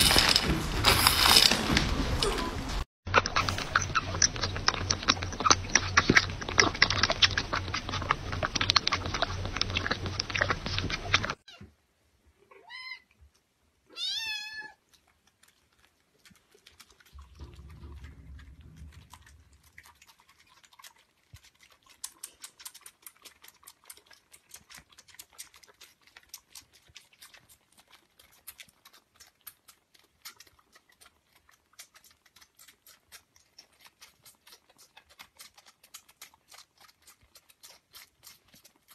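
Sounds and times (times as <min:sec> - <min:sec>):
dense clicks and noise: 0:00.0 - 0:11.4, 0:17.1 - 0:20.0
kittens suckling wet clicks: 0:03.1 - 0:11.5, 0:14.8 - 0:38.9
kitten meowing: 0:13.9 - 0:14.8.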